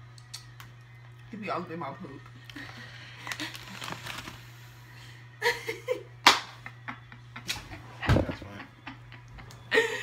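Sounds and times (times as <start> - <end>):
woman laughing: 5.4 - 10.0.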